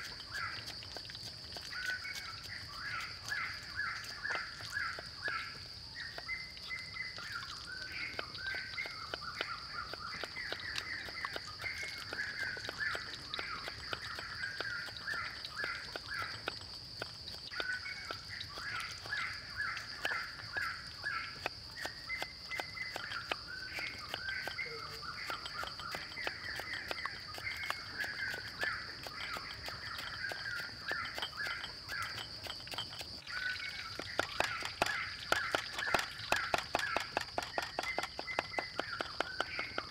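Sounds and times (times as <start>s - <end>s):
birds chirping: 0.0s - 39.9s
knife chopping on wooden block: 28.0s - 39.9s.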